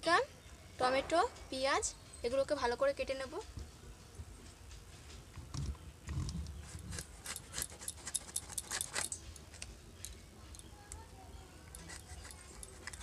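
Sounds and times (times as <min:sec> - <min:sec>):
knife cutting crisp pepper: 0:06.6 - 0:09.6, 0:11.7 - 0:13.0.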